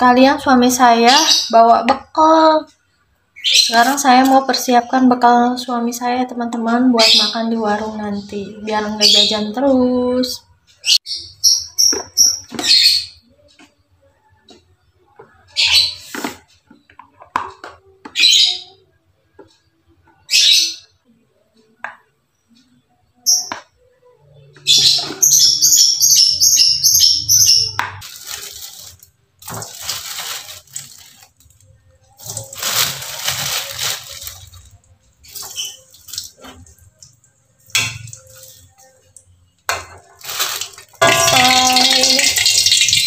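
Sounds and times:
high bird-like chirps: 24.3s - 28.0s, 35.2s - 36.4s.

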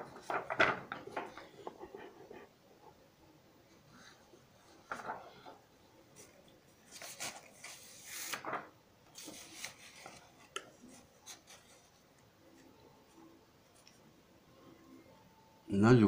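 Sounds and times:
paper rustling and sliding: 0.0s - 1.6s, 4.8s - 5.6s, 6.9s - 12.0s.

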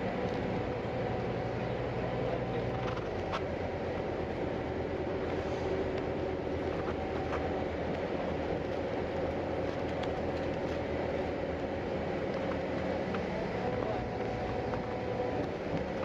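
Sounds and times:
bus engine and road noise: 0.0s - 16.0s.

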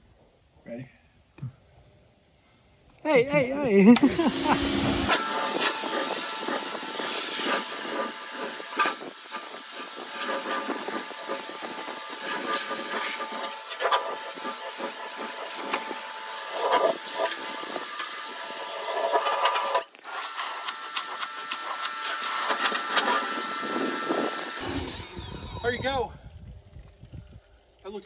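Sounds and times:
pressure washer spraying metal: 4.0s - 24.6s
steady whine: 4.0s - 26.8s.

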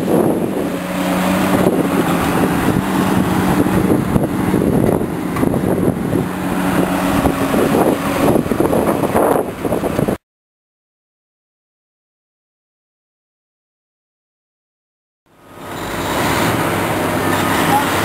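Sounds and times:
heavy diesel machinery engine drone: 0.0s - 10.2s, 15.3s - 18.0s.

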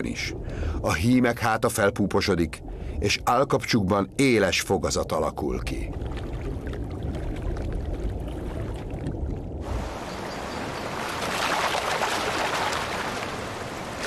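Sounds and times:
low muffled water rumble: 0.0s - 14.0s
stream rushing and splashing: 9.6s - 14.0s.

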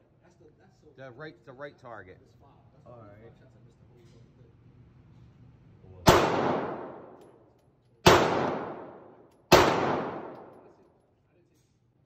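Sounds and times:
pistol shots with reverberant tail: 6.1s - 7.2s, 8.0s - 10.8s.

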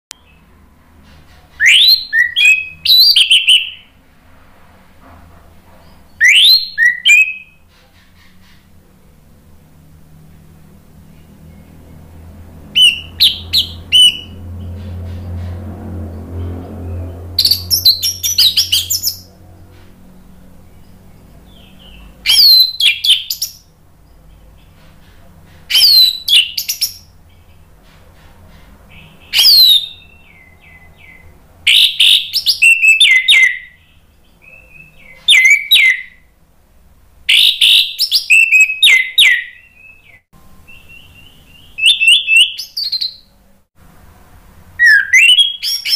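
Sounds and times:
thrush singing whistles and trills: 1.6s - 3.9s, 6.0s - 7.6s, 12.7s - 14.9s, 16.9s - 19.3s, 21.5s - 23.7s, 25.7s - 27.2s, 28.9s - 36.4s, 37.3s - 43.3s, 44.8s - 45.9s.

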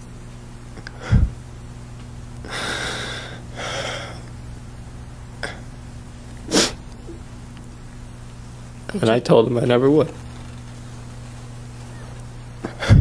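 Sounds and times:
low electrical hum: 0.0s - 13.0s
shaky breaths: 0.8s - 1.4s
sharp sniff: 6.5s - 6.8s.

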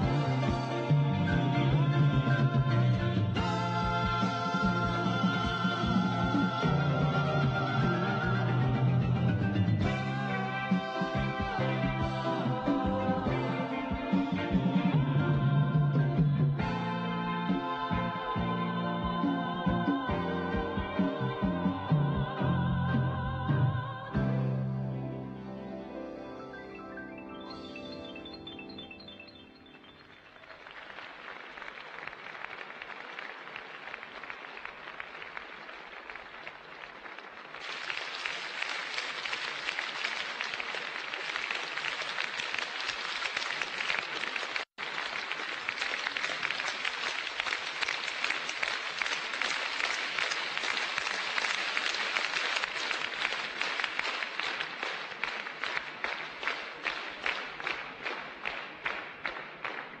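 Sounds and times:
rhythmic clapping in unison: 0.0s - 22.4s, 30.0s - 60.0s
audience applauding: 3.1s - 15.0s, 29.7s - 60.0s.

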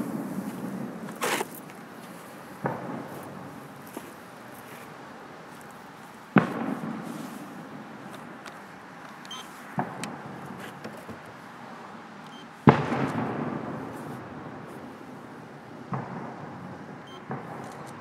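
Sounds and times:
firework booms with echo: 2.6s - 3.6s, 6.3s - 8.0s, 12.7s - 14.7s, 15.8s - 18.0s.

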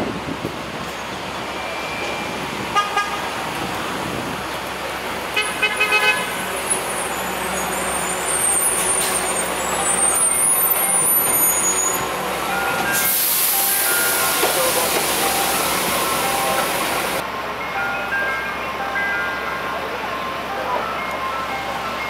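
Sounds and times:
street traffic: 0.0s - 22.0s
vehicle horn toots: 5.4s - 6.4s.

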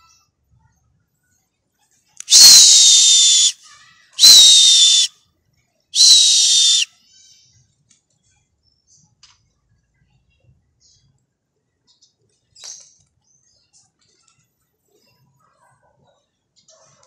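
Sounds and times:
shrill whistle blasts: 2.3s - 3.6s, 4.2s - 5.1s, 6.0s - 6.9s.

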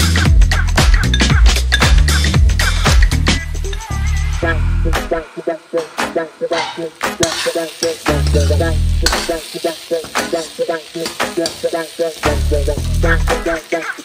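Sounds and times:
oil sizzling: 0.0s - 14.0s
ladle clinking against pan: 1.1s - 2.3s
ladle scraping a pan: 6.5s - 8.4s.

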